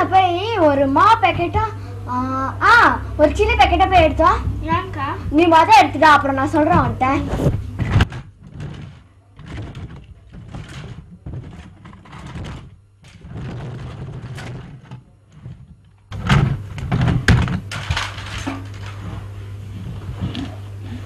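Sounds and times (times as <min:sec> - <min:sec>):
loud knocks: 0:06.5 - 0:17.7
rummaging in a cardboard box: 0:06.7 - 0:16.2.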